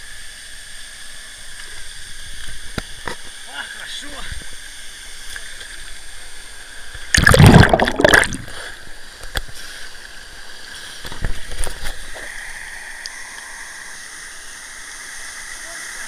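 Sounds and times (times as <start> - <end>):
water splashing: 7.0 - 8.8.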